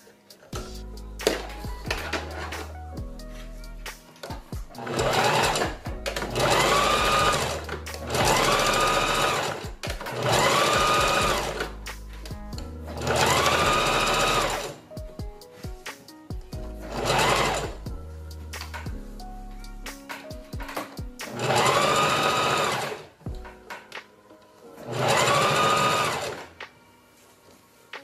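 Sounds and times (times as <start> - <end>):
sewing machine motor whining: 4.8 - 11.7, 12.9 - 14.8, 16.9 - 17.8, 21.3 - 23.1, 24.9 - 26.5.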